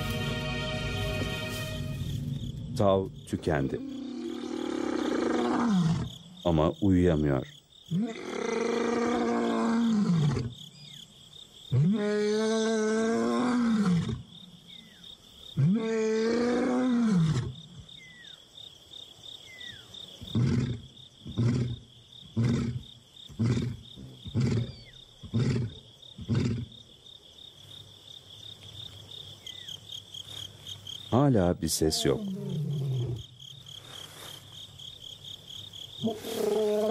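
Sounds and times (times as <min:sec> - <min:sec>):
lion roaring: 0:03.7 - 0:06.1, 0:31.9 - 0:33.3, 0:36.0 - 0:36.9.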